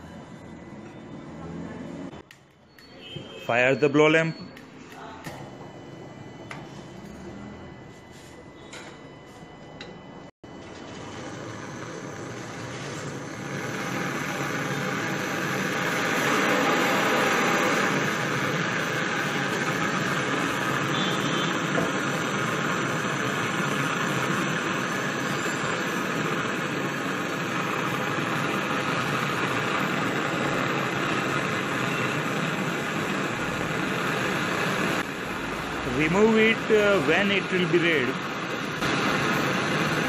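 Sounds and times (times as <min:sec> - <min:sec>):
blow torch flame hissing: 0:10.6 - 0:40.0.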